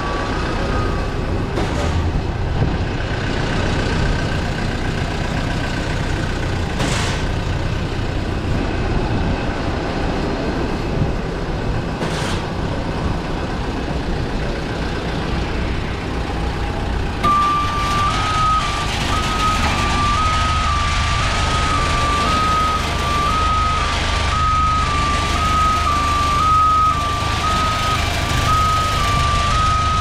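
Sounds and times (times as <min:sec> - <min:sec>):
vehicle engines running: 0:00.0 - 0:30.0
vehicle warning alarm: 0:17.2 - 0:30.0.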